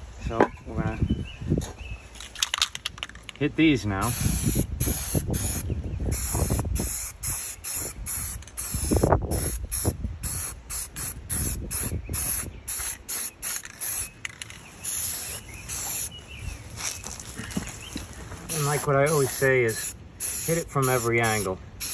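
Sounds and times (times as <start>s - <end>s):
aerosol spray can hissing: 4.1s - 5.6s, 6.2s - 14.2s, 14.8s - 16.1s, 18.5s - 21.9s.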